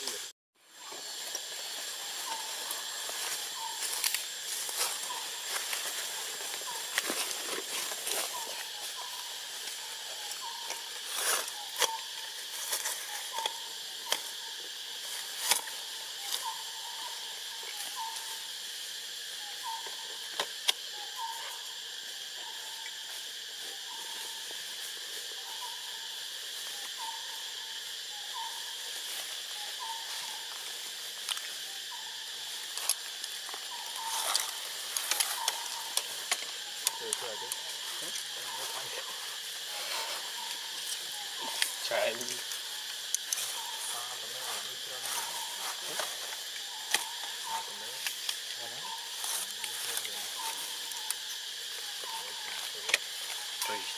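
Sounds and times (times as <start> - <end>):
rustles: 0.0 - 14.4, 20.2 - 53.9
insects droning: 0.0 - 53.9
bird hooting: 0.8 - 12.4, 31.6 - 53.9.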